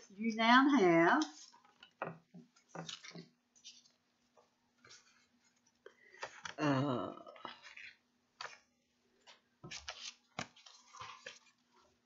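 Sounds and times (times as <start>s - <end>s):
faint electrical hum: 0.0s - 12.0s
paper rustling and crinkling: 9.2s - 12.0s.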